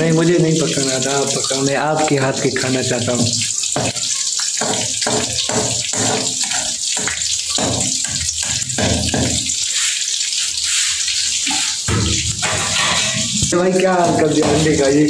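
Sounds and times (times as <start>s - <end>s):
egg sizzling in hot oil: 0.0s - 15.0s
oil spitting and crackling: 0.2s - 15.0s.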